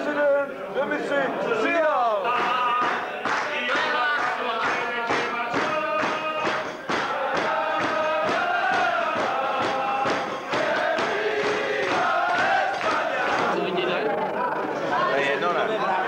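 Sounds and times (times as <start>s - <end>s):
rhythmic hand-clapping: 2.2s - 13.8s
group singing in unison: 2.2s - 16.0s.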